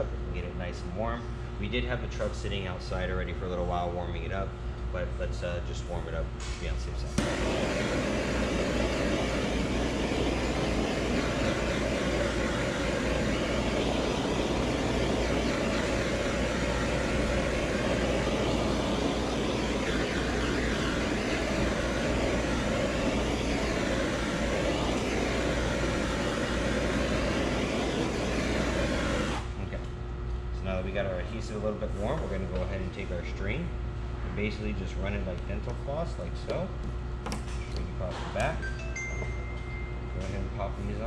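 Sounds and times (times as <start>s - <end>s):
gas torch hissing: 6.4s - 29.6s.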